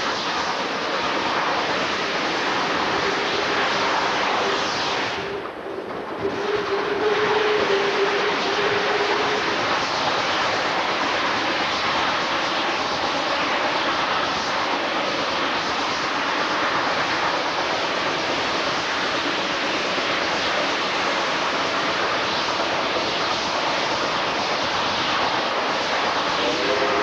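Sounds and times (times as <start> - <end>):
wind rushing: 0.0 - 12.8
train running noise: 0.0 - 27.0.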